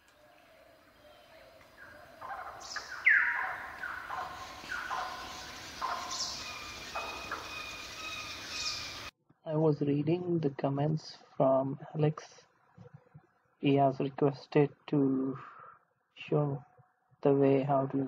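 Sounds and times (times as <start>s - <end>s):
bird-like chirping calls: 0.5s - 9.1s.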